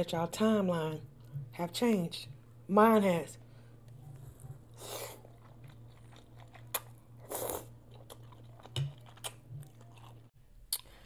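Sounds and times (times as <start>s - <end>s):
low steady hum: 0.0s - 11.0s
chewing with mouth clicks: 3.9s - 10.9s.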